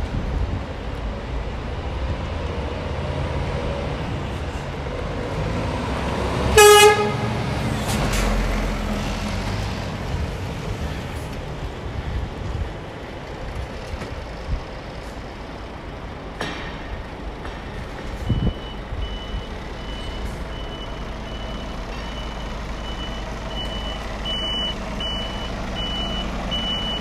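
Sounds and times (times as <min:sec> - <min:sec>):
truck diesel engine running: 0:06.5 - 0:27.0
short horn toot: 0:06.6 - 0:07.2.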